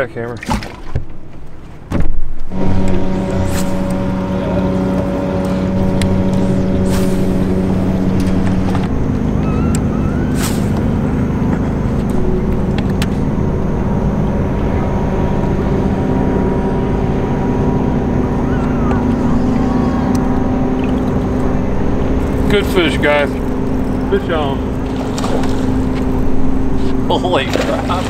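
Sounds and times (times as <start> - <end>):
electric motor humming: 2.4 - 28.0.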